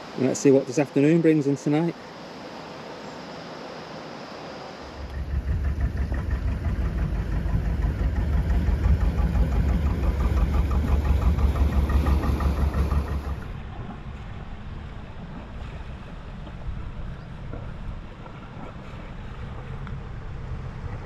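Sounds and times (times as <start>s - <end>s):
boat engine chugging: 5.0s - 21.0s.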